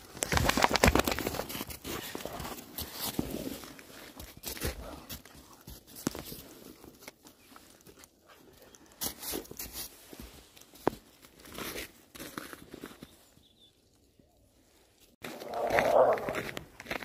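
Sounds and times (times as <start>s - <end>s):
footsteps crunching in snow: 8.7s - 13.4s, 15.2s - 17.0s.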